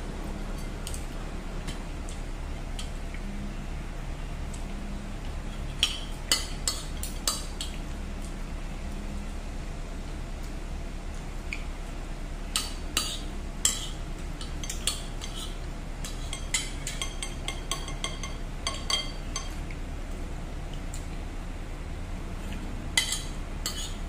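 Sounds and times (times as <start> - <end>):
low steady hum: 0.0 - 24.0
cutlery clinking on ceramic plate: 14.6 - 19.6, 23.0 - 24.0.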